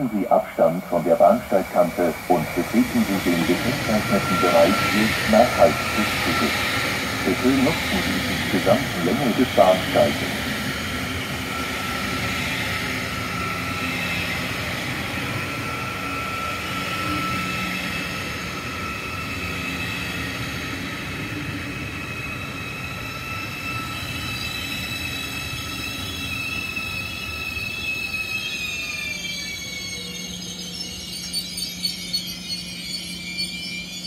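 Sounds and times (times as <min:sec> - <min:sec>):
train wheels rumbling: 0:00.0 - 0:15.6
train brakes squealing: 0:00.0 - 0:34.0.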